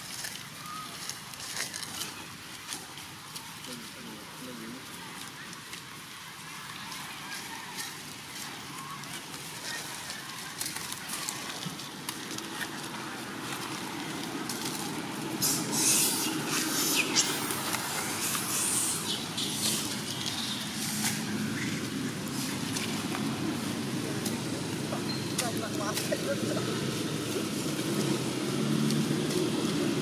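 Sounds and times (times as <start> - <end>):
rustling and crackling in dry leaves: 0.0 - 30.0.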